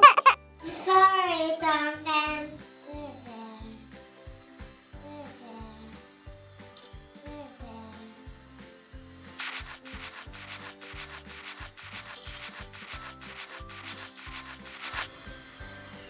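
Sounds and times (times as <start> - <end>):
brushing strokes: 9.3 - 15.2.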